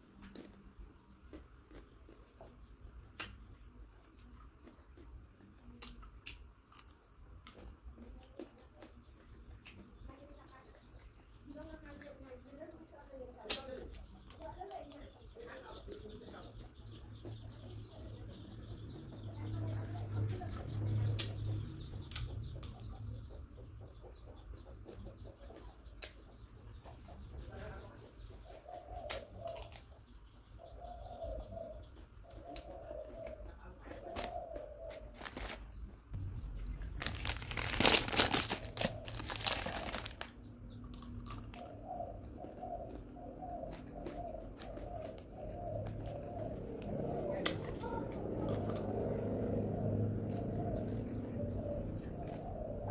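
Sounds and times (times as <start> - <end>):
chewing ice cream bar: 0.0 - 12.3, 13.4 - 27.4, 28.3 - 52.9
crunching bites: 0.2 - 3.4, 4.1 - 9.9, 29.1 - 30.0, 33.9 - 47.8
plastic wrapper crinkling: 35.0 - 35.8, 36.7 - 40.4.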